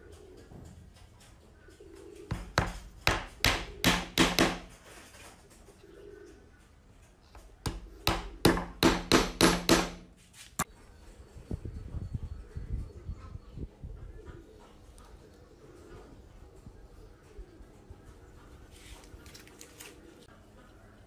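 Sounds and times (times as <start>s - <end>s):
hammer tapping wooden dowels: 2.3s - 4.8s, 7.6s - 10.1s.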